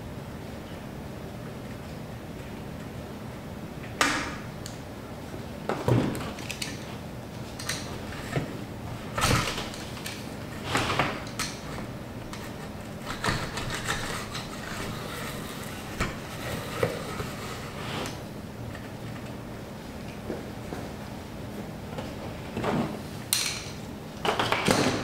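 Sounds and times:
spline roller rolling and scraping: 7.9s - 18.3s.

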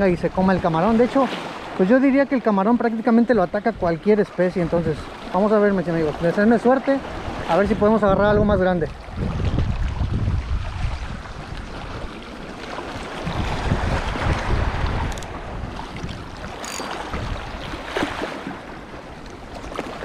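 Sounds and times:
sea waves: 0.0s - 20.0s
gusty wind buffeting microphone: 7.0s - 12.3s, 12.9s - 20.0s.

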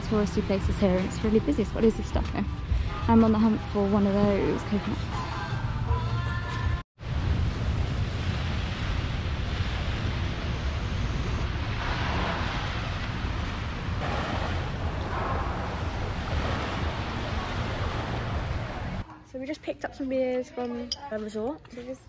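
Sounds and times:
wind buffeting microphone: 7.0s - 19.0s
surf washing onto beach: 7.1s - 19.0s.

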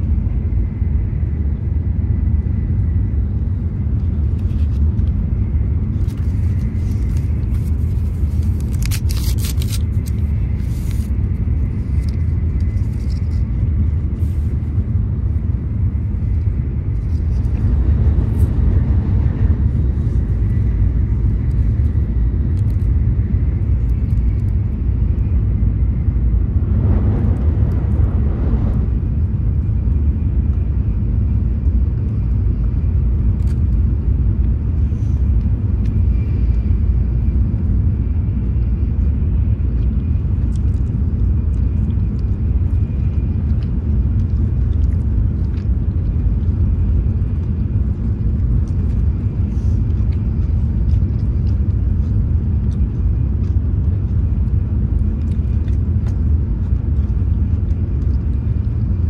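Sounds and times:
low rumble of train cabin: 0.0s - 59.0s
plastic packet tearing open: 8.3s - 10.2s.

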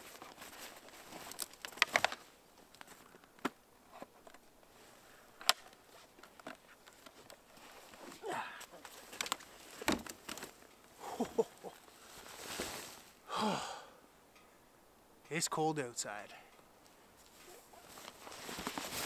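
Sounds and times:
winter clothing rustling: 0.0s - 3.2s, 3.8s - 13.2s, 16.8s - 19.0s.

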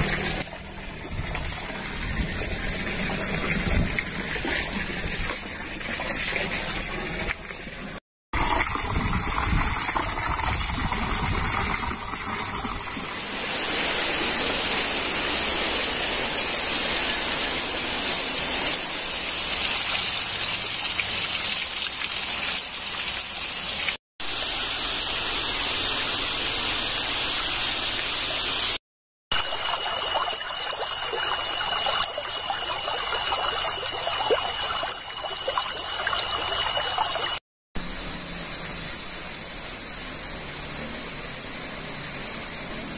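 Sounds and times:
flowing water: 0.0s - 37.4s
thin high tone: 37.8s - 42.9s.

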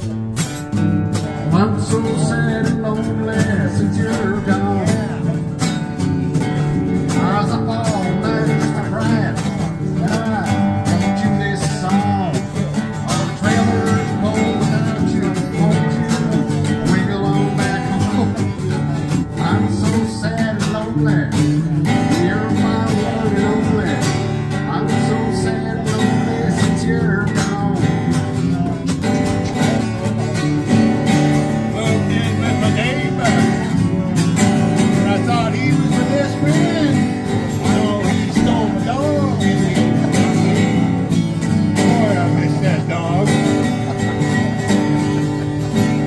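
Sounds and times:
acoustic guitars strumming chords: 0.0s - 46.0s.

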